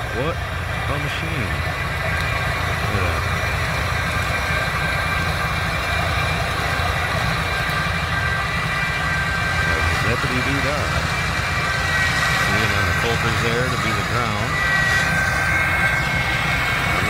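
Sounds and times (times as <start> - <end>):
engine low rumble: 0.0 - 17.0
high steady whine: 0.0 - 17.0.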